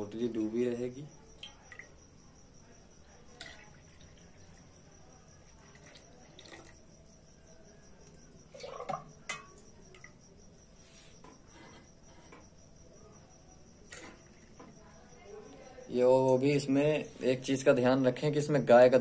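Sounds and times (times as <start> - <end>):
milk pouring: 3.4 - 4.7, 5.5 - 6.9, 8.0 - 10.2
steel bowl clinking: 8.6 - 9.6.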